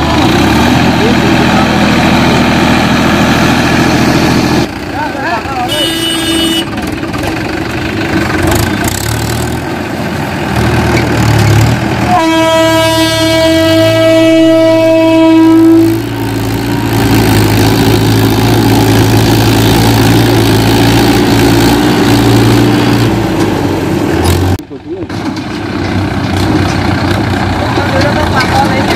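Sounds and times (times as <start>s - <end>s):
tractor diesel engine running: 0.0s - 28.9s
train horn blast: 5.7s - 6.7s, 12.0s - 16.1s.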